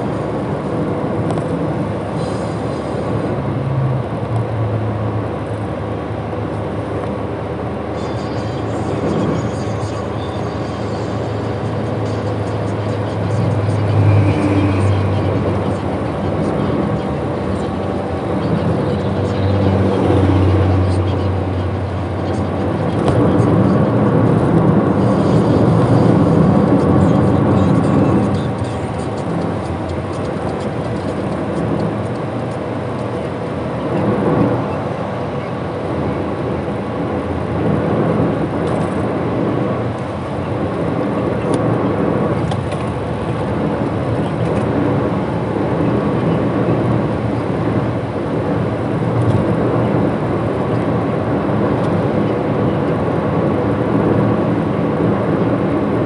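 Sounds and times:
car driving on highway: 0.0 - 56.0.

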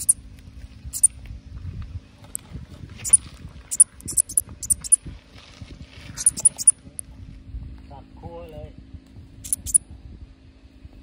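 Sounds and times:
katydid chirping: 0.0 - 0.2, 0.9 - 1.1, 3.0 - 5.0, 6.2 - 6.8, 9.4 - 9.8.

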